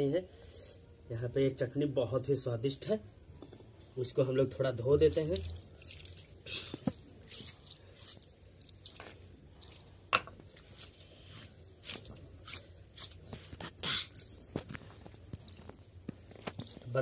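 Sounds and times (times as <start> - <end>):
gritty scrubbing of wet stone: 4.8 - 9.9, 10.6 - 14.6
water splashing: 5.0 - 9.9.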